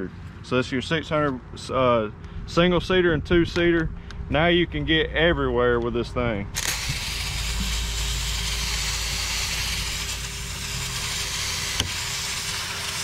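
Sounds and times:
hissing water spray: 6.6s - 13.0s.

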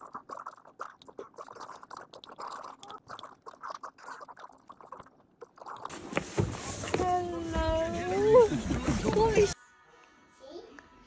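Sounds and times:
chewing: 0.0s - 6.0s.

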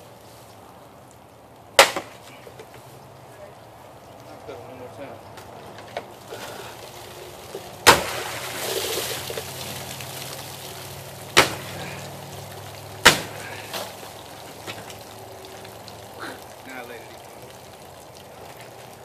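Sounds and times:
sharp knocks: 1.8s - 2.2s, 7.8s - 8.4s, 11.3s - 11.8s, 13.0s - 13.4s
water splashing and pouring: 5.2s - 19.0s.

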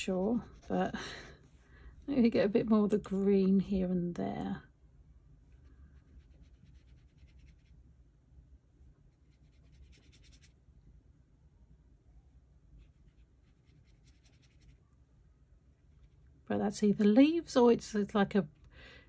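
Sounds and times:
paintbrush strokes on paper: 0.0s - 1.6s, 5.4s - 7.9s, 9.1s - 10.6s, 12.7s - 15.0s.

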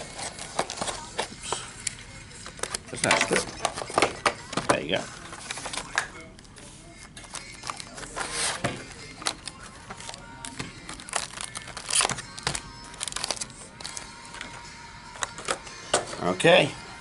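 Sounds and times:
cardboard rustling: 0.0s - 1.4s, 7.2s - 13.9s
crinkling foil wrapping: 0.0s - 14.6s.

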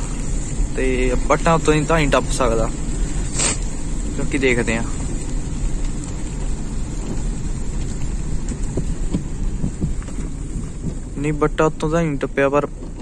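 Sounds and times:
faint hiss: 0.0s - 8.5s
car rumbling on a wet road: 0.0s - 13.0s.

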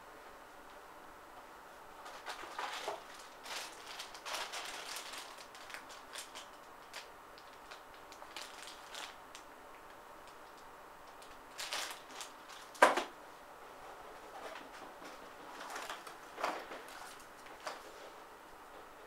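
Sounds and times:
plastic bag crinkling: 2.0s - 9.5s, 10.2s - 13.1s, 15.5s - 17.8s.

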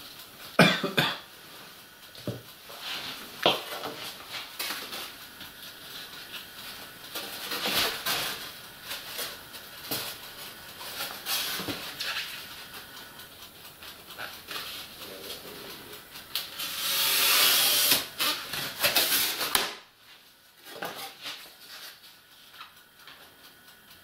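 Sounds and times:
foam sheets scraping and rustling: 2.7s - 5.2s, 5.9s - 12.4s, 16.4s - 19.6s, 20.6s - 22.2s.

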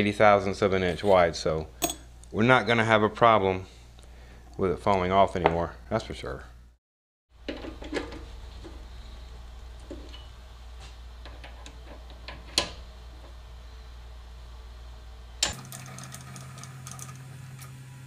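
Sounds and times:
steady low hum: 7.4s - 18.0s.

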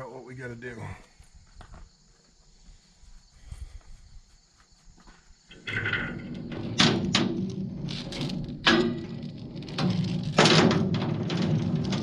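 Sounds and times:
chain clanking on metal deck: 5.5s - 12.0s.

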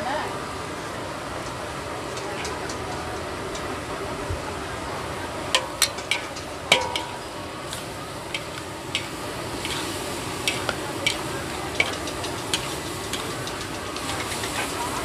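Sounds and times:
food sizzling: 0.0s - 15.0s
sharp metallic clangs: 5.6s - 7.4s
metal spatulas scraping a wok: 5.6s - 15.0s.

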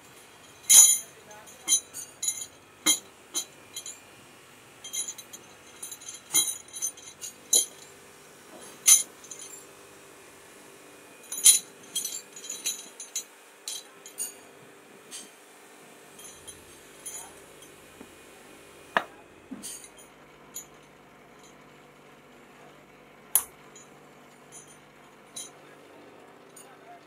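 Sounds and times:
metal wrenches clinking: 0.6s - 4.0s, 4.8s - 7.9s, 8.8s - 9.6s, 11.3s - 14.4s, 16.2s - 17.4s, 24.5s - 25.6s.

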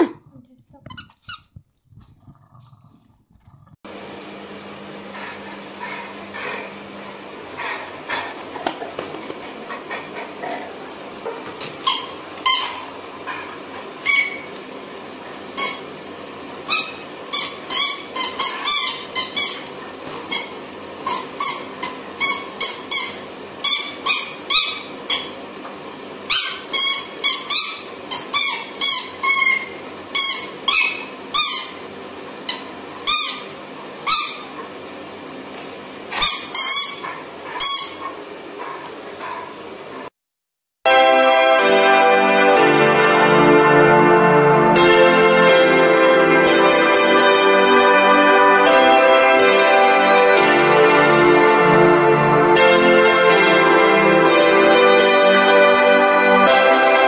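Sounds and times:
squeaky toy squeaking: 0.9s - 1.5s, 11.8s - 12.9s, 15.6s - 15.9s, 16.7s - 25.4s, 26.3s - 31.8s, 32.5s - 34.5s, 36.2s - 38.1s.

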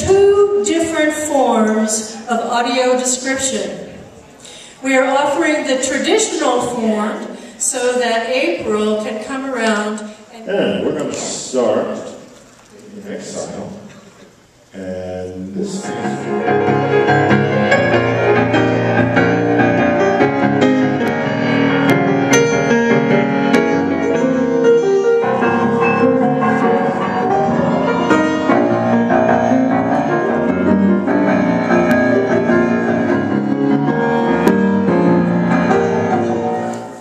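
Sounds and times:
jazz piano: 15.8s - 37.0s.

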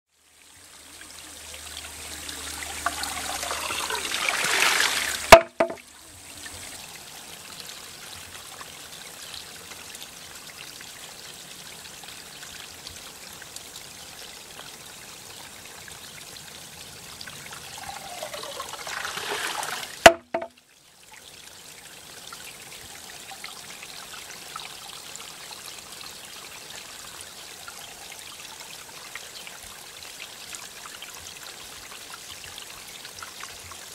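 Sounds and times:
water trickling: 0.1s - 33.9s
water gurgling in bamboo tube: 0.6s - 7.3s, 17.3s - 20.6s
bamboo clacking on stone: 5.3s - 5.8s, 20.1s - 20.6s.

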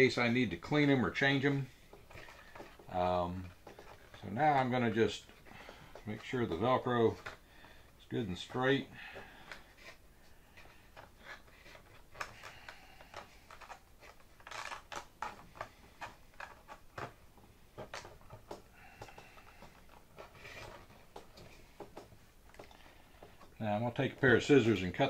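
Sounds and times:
velcro rasp: 9.5s - 17.0s, 17.9s - 21.3s
fingers working velcro strap: 10.6s - 17.0s.

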